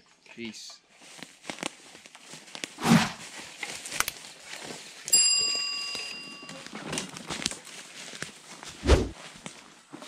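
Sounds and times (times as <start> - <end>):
footsteps crunching through dry leaves: 0.9 - 9.9
bell-like ding: 5.1 - 6.7.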